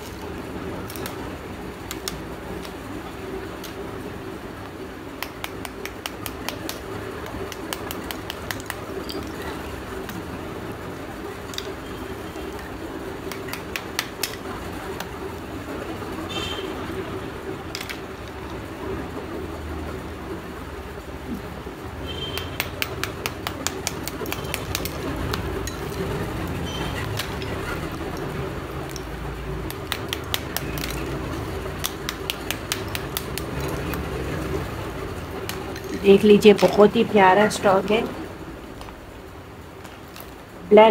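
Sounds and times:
clay slabs clicking and cracking: 0:00.0 - 0:02.8, 0:05.2 - 0:10.3, 0:13.2 - 0:15.2, 0:22.4 - 0:26.2, 0:27.0 - 0:34.2
hammer on clay: 0:31.8 - 0:33.5.

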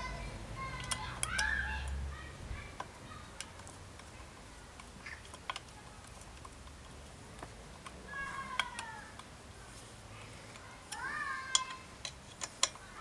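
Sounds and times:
hex key clicking on bolts: 0:00.7 - 0:02.0.

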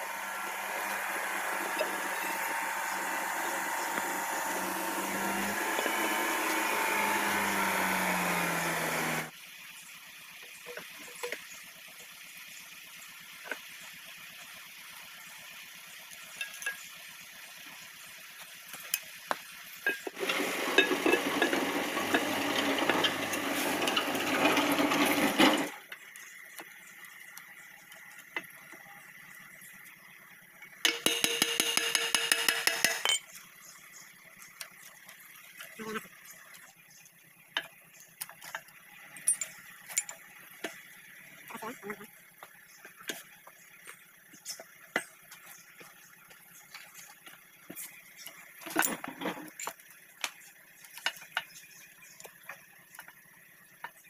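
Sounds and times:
workshop noise: 0:19.9 - 0:25.8, 0:30.8 - 0:33.3.

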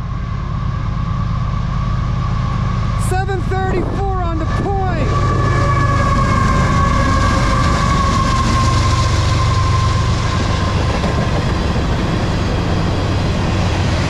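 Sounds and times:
locomotive engine rumble and whine: 0:00.0 - 0:14.0
train wheels on rails: 0:03.8 - 0:14.0.

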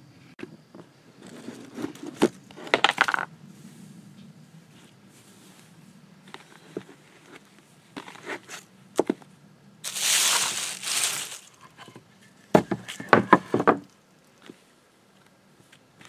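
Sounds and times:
loud rustling rush: 0:09.8 - 0:11.7
wooden planks knocking: 0:10.0 - 0:13.9.

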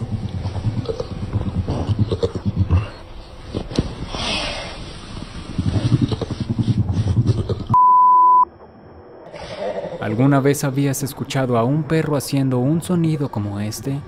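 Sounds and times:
dog growling rattling rumble: 0:00.0 - 0:03.0, 0:05.0 - 0:07.8.

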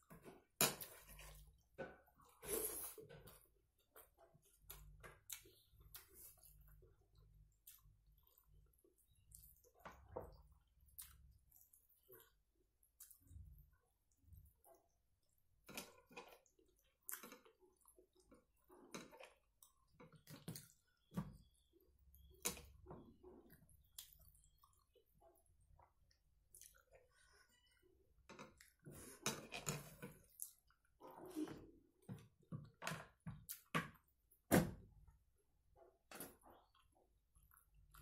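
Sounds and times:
person chewing with mouth smacks: 0:23.3 - 0:27.8.

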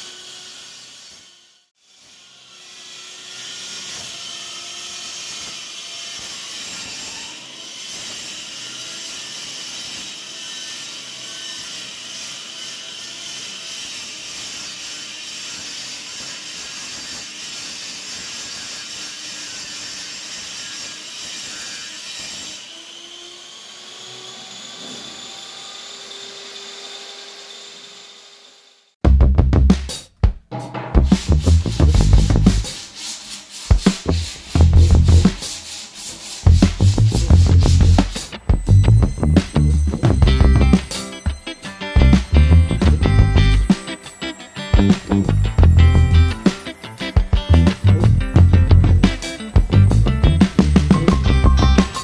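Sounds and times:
saw blade cutting wood: 0:00.0 - 0:28.9, 0:31.0 - 0:52.0
miter saw motor whine: 0:22.6 - 0:28.9, 0:37.5 - 0:52.0.

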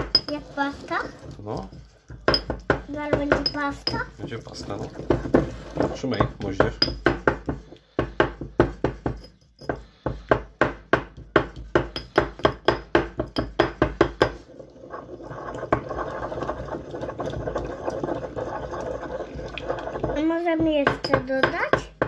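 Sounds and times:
pestle grinding round bowl: 0:00.0 - 0:22.0
stone pestle pounding in mortar: 0:02.1 - 0:04.2, 0:04.9 - 0:14.4, 0:20.0 - 0:22.0.

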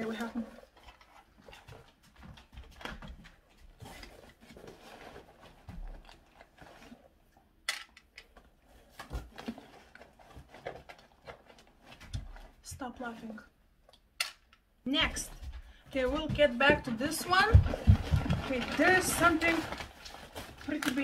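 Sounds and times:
packaging rustling: 0:08.4 - 0:12.5, 0:17.4 - 0:21.0.

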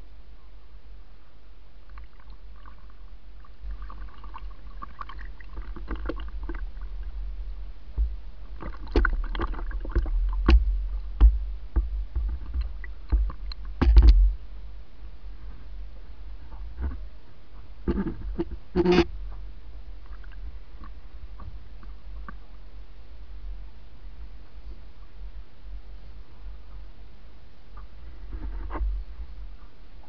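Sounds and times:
steady low rumble: 0:00.0 - 0:30.0
water splashing against canoe hull: 0:03.6 - 0:07.3, 0:07.9 - 0:14.4
sharp knocks on hull: 0:08.0 - 0:14.4.

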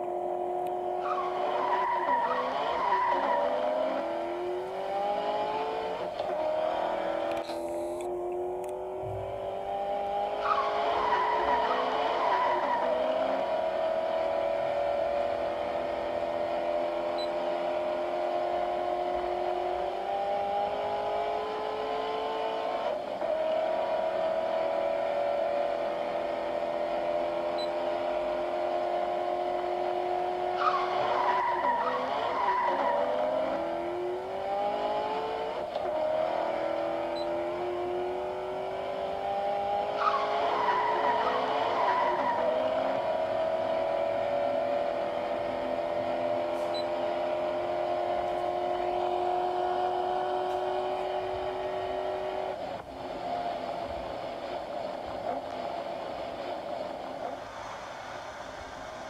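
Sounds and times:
race car engine: 0:00.0 - 0:59.0
tyre squeal: 0:01.0 - 0:04.0, 0:10.4 - 0:13.4, 0:30.4 - 0:33.3, 0:39.9 - 0:42.7.

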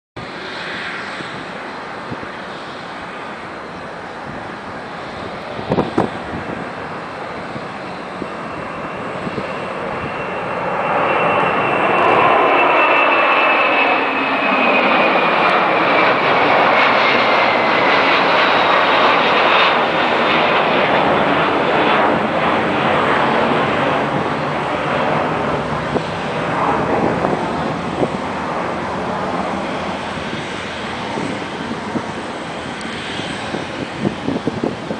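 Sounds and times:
jet engines roaring: 0:00.2 - 0:34.9.

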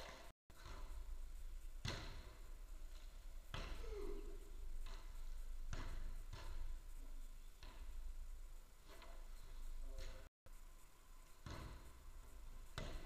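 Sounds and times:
ball thuds echoing in hall: 0:01.7 - 0:07.0, 0:11.4 - 0:13.0.

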